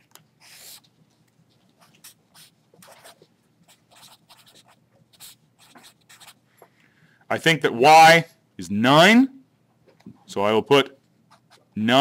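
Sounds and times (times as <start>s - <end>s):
marker scratching on paper: 0.4s - 0.9s, 1.6s - 6.4s, 11.3s - 11.7s.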